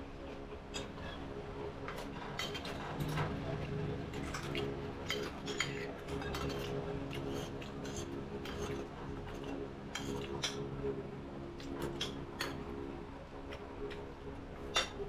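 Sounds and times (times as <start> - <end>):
steady low hum: 0.0 - 15.0
cutlery clinking on ceramic plates: 4.2 - 8.8.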